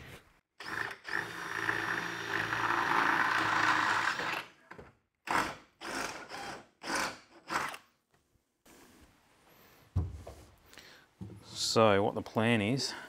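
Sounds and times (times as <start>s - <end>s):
cordless drill boring through metal: 0.6s - 4.5s, 5.3s - 7.8s.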